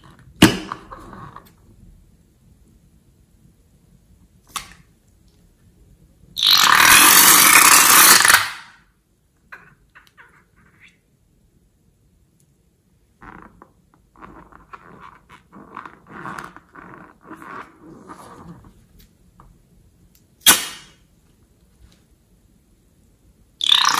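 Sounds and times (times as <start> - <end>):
rubber balloon squeaking: 6.4 - 8.6, 13.2 - 18.8, 23.6 - 23.9
balloon hissing as it empties: 6.4 - 8.7.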